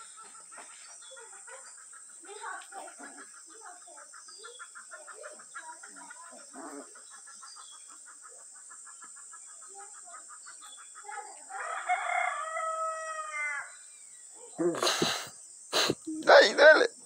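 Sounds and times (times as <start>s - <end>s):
rooster crowing: 11.5s - 13.7s
high-pitched hiss: 13.7s - 17.0s.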